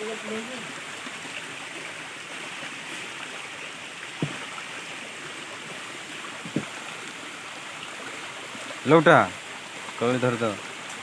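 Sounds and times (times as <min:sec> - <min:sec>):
flowing water rushing: 0:00.0 - 0:11.0
short low knocks: 0:04.1 - 0:04.6, 0:06.4 - 0:06.8.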